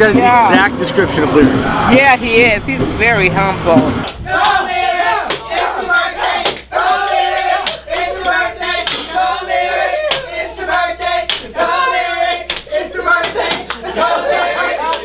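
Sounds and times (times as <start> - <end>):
young people shouting and chanting: 3.9 - 15.0.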